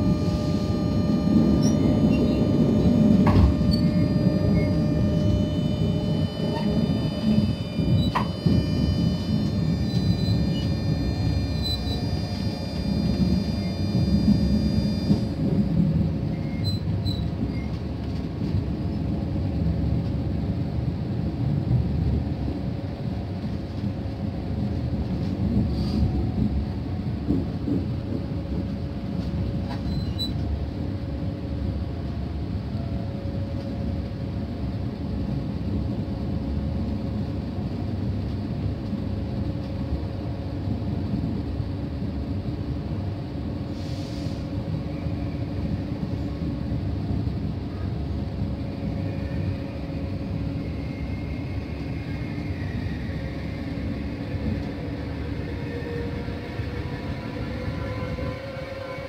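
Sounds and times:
faint high wavering squeal: 0:00.0 - 0:15.4, 0:16.3 - 0:17.8, 0:48.7 - 0:59.0
train rumbling: 0:00.0 - 0:59.0
brief hiss: 0:43.8 - 0:44.5.

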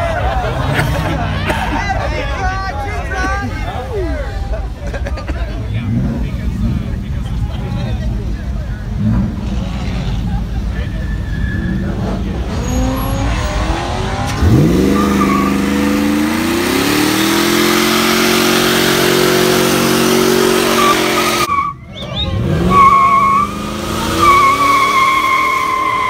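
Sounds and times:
truck engine revving: 0:05.6 - 0:26.0
tyres squealing: 0:09.7 - 0:26.0.

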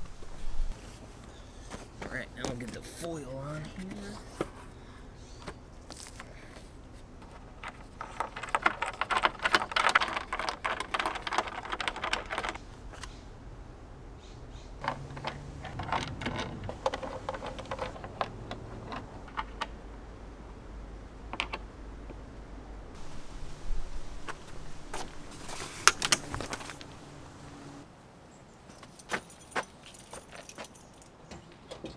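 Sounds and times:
hand tools clicking and tapping: 0:14.8 - 0:19.8.

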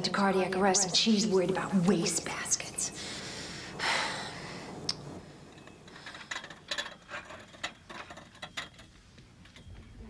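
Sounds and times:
breathy hiss: 0:02.2 - 0:06.4.

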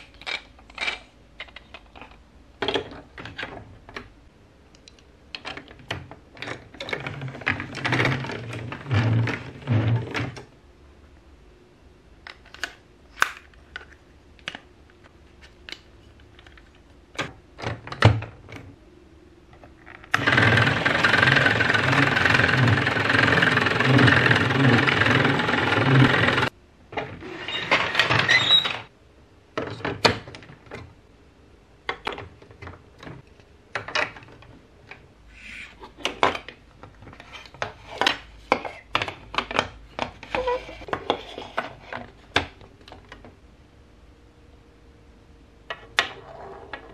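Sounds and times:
plastic blocks clicking together: 0:00.0 - 0:04.1
hand crank driving plastic gears: 0:20.1 - 0:26.5.

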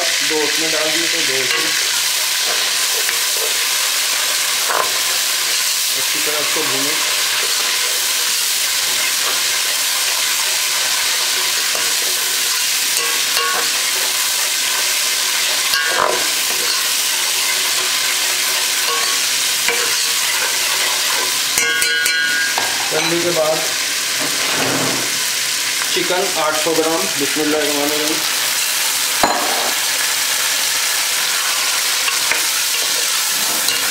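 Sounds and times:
paste sizzling in hot oil: 0:00.0 - 0:33.9
metal spoon stirring: 0:01.3 - 0:23.2, 0:31.3 - 0:33.9
spoon scraping metal pot: 0:32.1 - 0:33.9.

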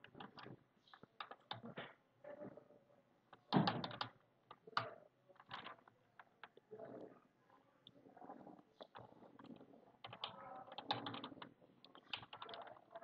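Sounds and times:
keyboard typing: 0:08.8 - 0:13.0.

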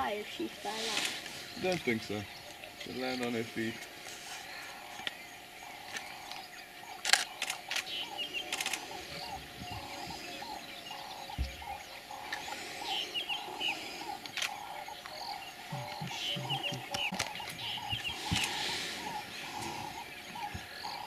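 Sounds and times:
birds chirping: 0:00.0 - 0:21.0
camera shutters clicking: 0:07.0 - 0:08.9.

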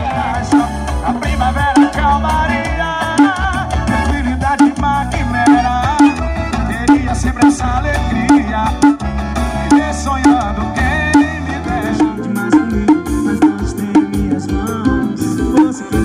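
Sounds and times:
loud music with singing and bass: 0:00.0 - 0:16.0.

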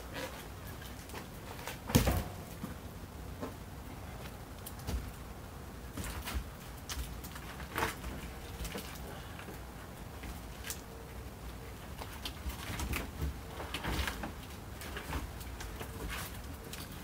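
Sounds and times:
logs knocking and thumping: 0:01.6 - 0:02.8.

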